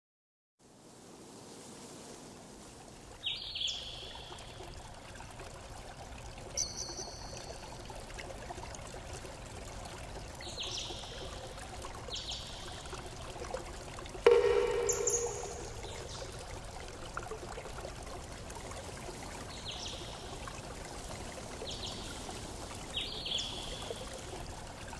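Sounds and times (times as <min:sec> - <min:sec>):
water trickling: 0:01.8 - 0:24.9
high bird chirps: 0:14.3 - 0:16.4
lower bird call: 0:14.3 - 0:16.4.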